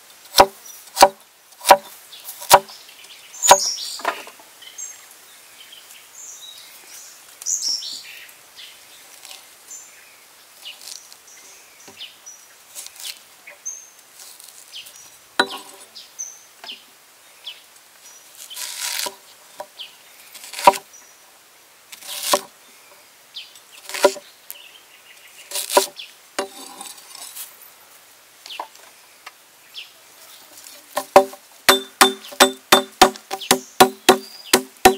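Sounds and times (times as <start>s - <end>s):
cleaver chopping on wooden block: 0.3s - 1.9s, 2.5s - 2.7s, 15.4s - 15.7s, 20.5s - 20.8s, 23.9s - 24.2s, 31.0s - 34.9s
faint birds chirping: 0.3s - 21.5s, 22.3s - 34.9s.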